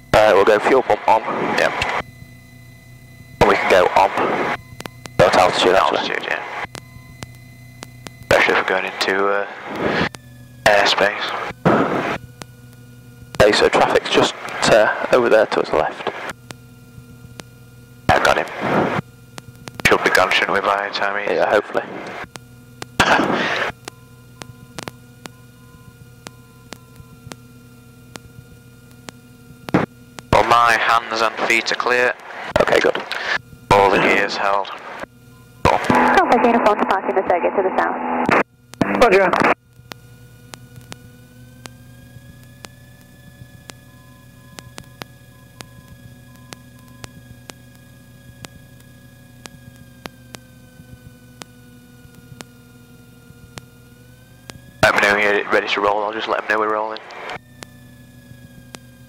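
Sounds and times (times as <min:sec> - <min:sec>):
steady electrical hum: 0:00.0 - 0:59.0
faint irregular ticks: 0:04.5 - 0:05.2, 0:06.6 - 0:08.4, 0:11.5 - 0:15.1, 0:16.0 - 0:20.1, 0:22.0 - 0:23.0, 0:23.6 - 0:30.4, 0:38.5 - 0:38.9, 0:39.6 - 0:56.4, 0:57.0 - 0:59.0
sharp clicks on intercom line: 0:06.6 - 0:08.6, 0:22.0 - 0:27.4, 0:56.2 - 0:57.7.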